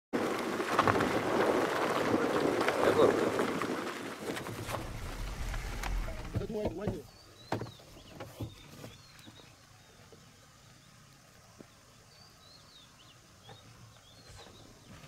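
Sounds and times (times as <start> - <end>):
small birds chirping: 4.4 - 15.0.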